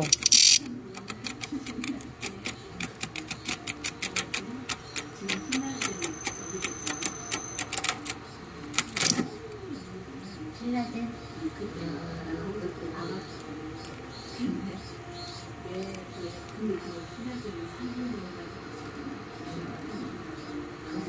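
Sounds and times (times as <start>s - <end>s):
cicada buzz: 0.0s - 0.6s
insect claws scratching plastic: 0.0s - 8.2s, 8.8s - 9.3s.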